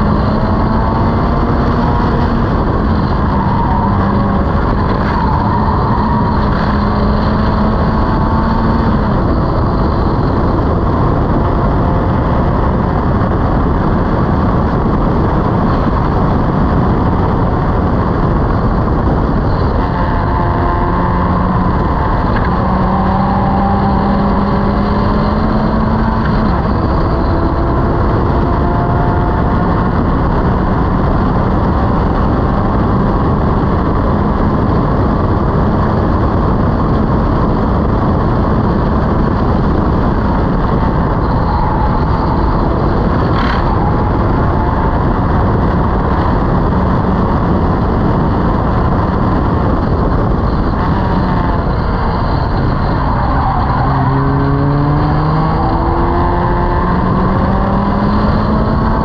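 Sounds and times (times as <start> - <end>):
race car engine revving: 0.0 - 59.0
wind noise: 0.0 - 59.0.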